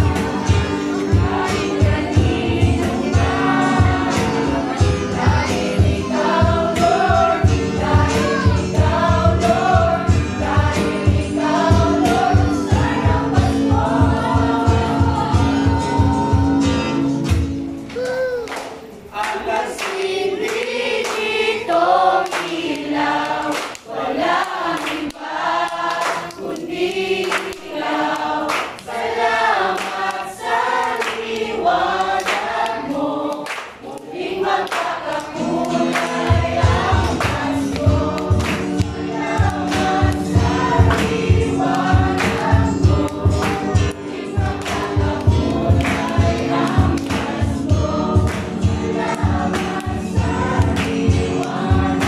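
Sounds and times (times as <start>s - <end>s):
choir singing: 0.0s - 17.4s, 18.9s - 52.0s
keyboard: 0.0s - 19.0s, 35.1s - 52.0s
acoustic guitar: 0.0s - 19.9s, 34.6s - 52.0s
hands clapping: 17.2s - 36.4s, 37.0s - 52.0s.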